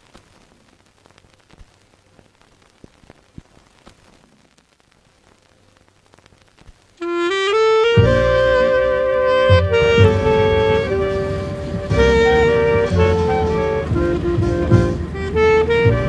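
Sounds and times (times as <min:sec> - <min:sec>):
film crackle and hiss: 0:00.0 - 0:16.0
jazz music with wind instrument: 0:07.0 - 0:16.0.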